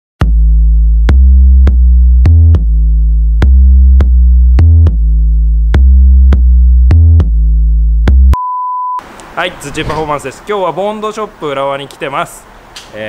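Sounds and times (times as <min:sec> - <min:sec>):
deep synthesizer bass line: 0:00.2 - 0:08.4.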